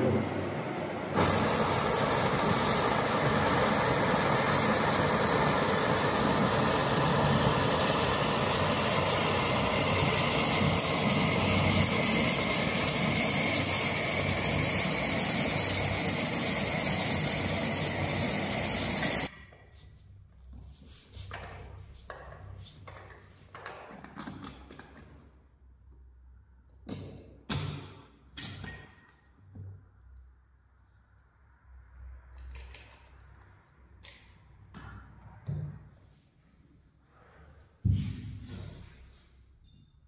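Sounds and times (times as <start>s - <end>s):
gas burner and steam hissing: 1.1s - 19.3s.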